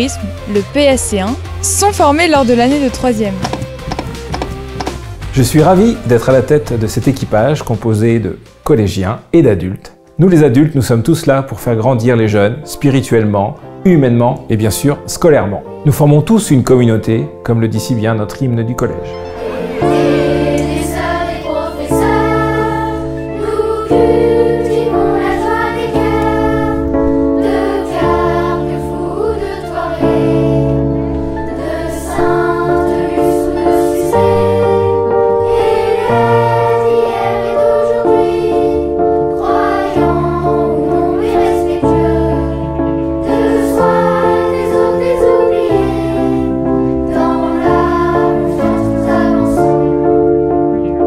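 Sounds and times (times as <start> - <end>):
backing music: 0.0 - 51.0
choir singing a hymn: 19.1 - 50.6.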